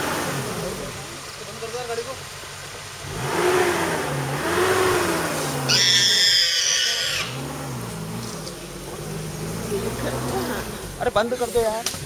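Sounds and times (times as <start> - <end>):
vehicle engine idling: 0.0 - 12.0
boar squealing: 5.7 - 7.4.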